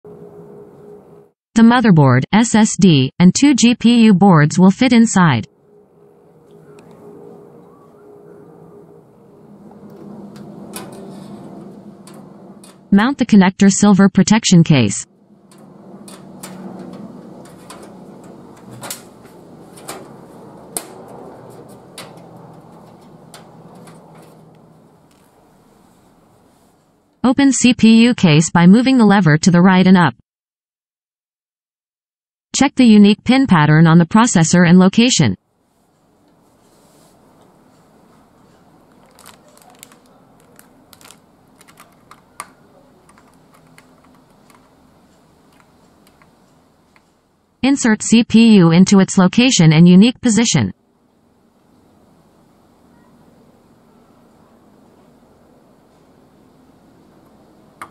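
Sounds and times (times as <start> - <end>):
metal rubbing and handling: 9.5 - 12.9, 15.3 - 27.0.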